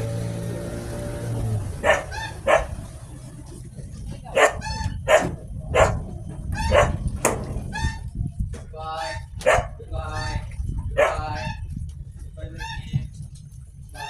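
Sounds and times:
dog barking: 1.8 - 2.8, 4.4 - 6.0, 6.7 - 7.0, 9.4 - 9.8, 11.0 - 11.2.

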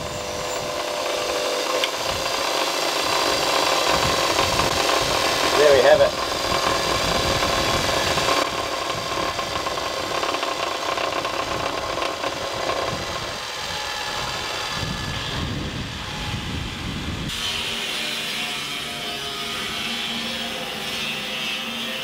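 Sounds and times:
metal grinding on wheel: 0.0 - 16.4
bench grinder motor hum: 0.0 - 22.0.

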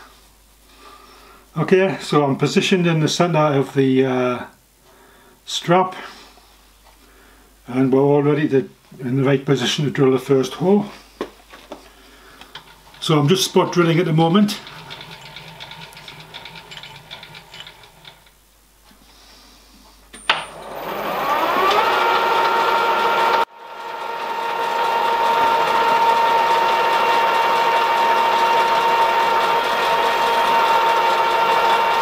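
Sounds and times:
milling machine spindle whine: 12.9 - 18.3, 20.3 - 32.0
drill bit cutting brass: 14.6 - 18.3, 20.5 - 32.0.

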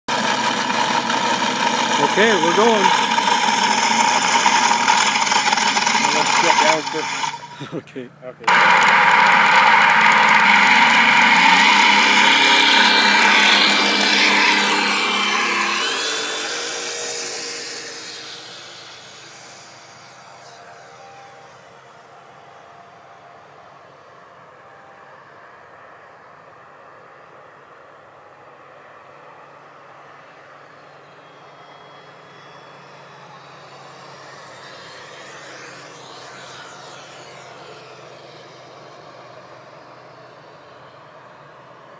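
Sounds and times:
simulated piston engine sound: 0.1 - 22.8, 31.0 - 41.7
electric motor and propeller: 0.1 - 41.9
model plane droning overhead: 0.1 - 41.9
rising whine: 0.1 - 41.9.

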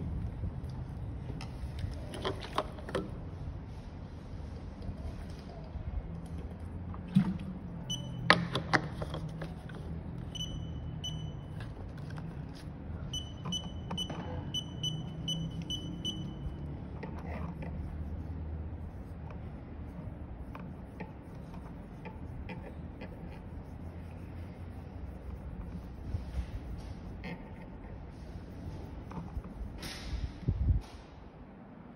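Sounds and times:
short electronic beeps: 7.9 - 8.3, 10.3 - 11.5, 13.1 - 16.5.

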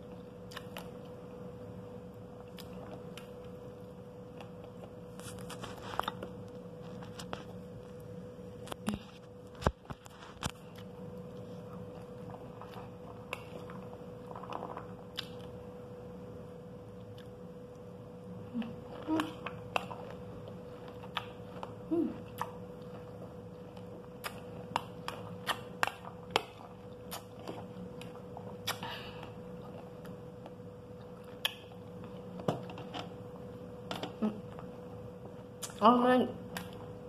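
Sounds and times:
background hum: 0.0 - 37.0
chewing: 8.7 - 15.6, 18.6 - 32.4.

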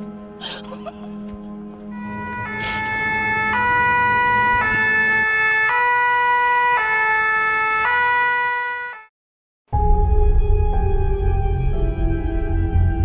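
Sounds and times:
two-tone emergency siren: 1.9 - 9.1.

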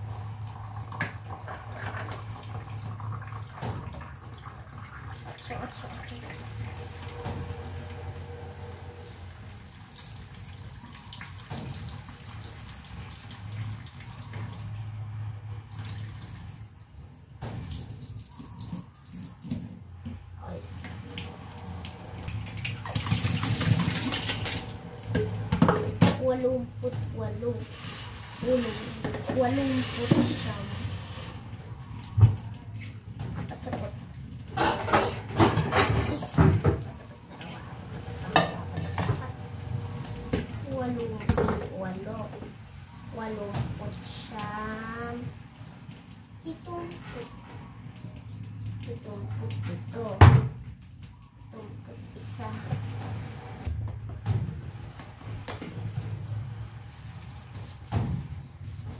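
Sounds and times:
cup being scrubbed: 27.6 - 31.4
dishes clattering: 34.5 - 36.8.

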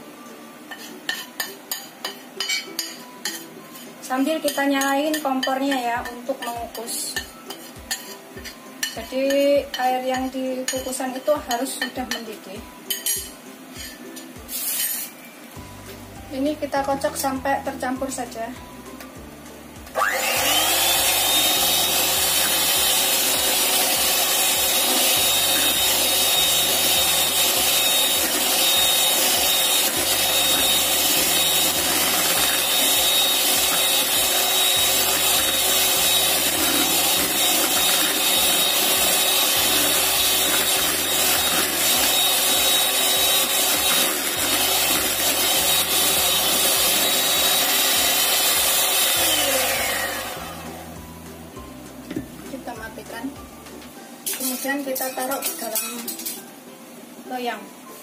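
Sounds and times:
electric hand mixer whine: 19.9 - 51.1.

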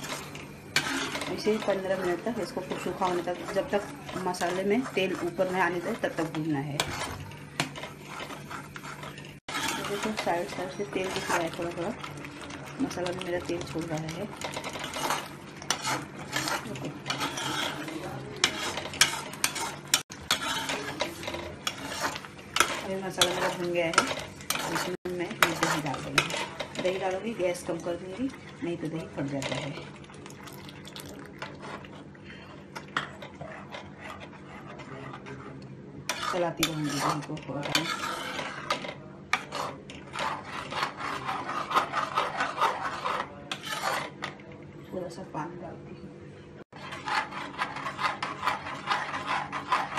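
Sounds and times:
ladle scraping steel pot: 0.0 - 44.4, 46.7 - 49.9.

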